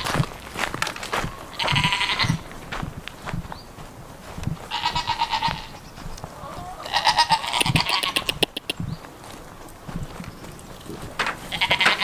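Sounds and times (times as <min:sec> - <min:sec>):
goats bleating: 0:01.5 - 0:02.4, 0:04.6 - 0:05.8, 0:06.5 - 0:08.6, 0:11.4 - 0:12.0.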